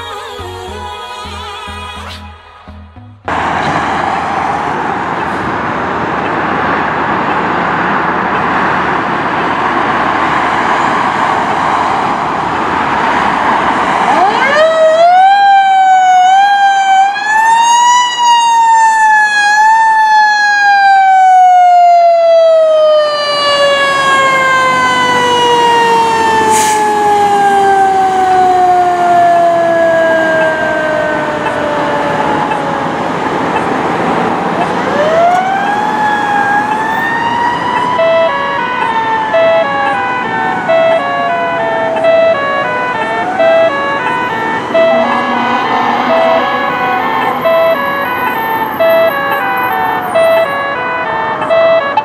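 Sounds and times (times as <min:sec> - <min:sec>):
fire engine siren wailing: 0:00.0 - 0:52.0
loud rushing noise: 0:03.2 - 0:14.2, 0:41.8 - 0:50.0.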